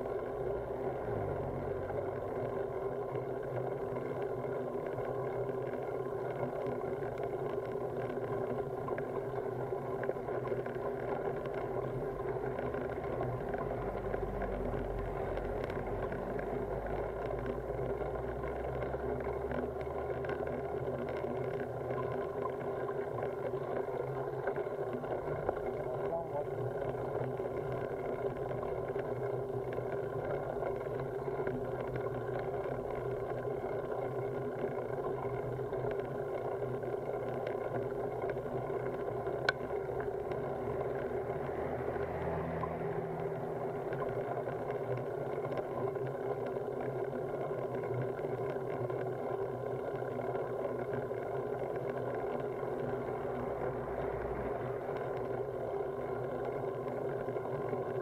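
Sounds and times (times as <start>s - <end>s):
bicycle tyres rumbling on asphalt: 0.0s - 50.4s.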